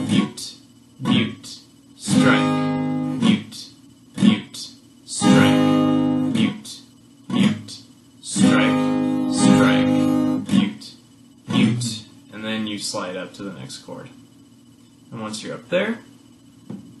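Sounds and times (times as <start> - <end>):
acoustic guitar strummed: 1.0 - 3.6, 4.2 - 10.9, 11.5 - 12.1.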